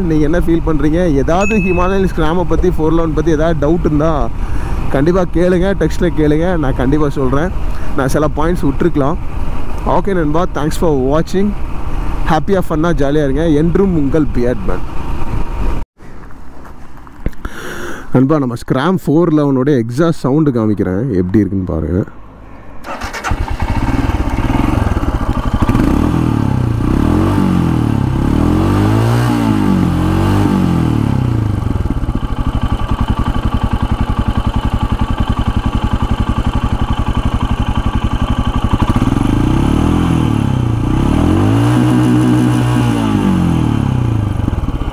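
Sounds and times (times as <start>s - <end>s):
motorcycle engine revving: 22.8s - 44.9s.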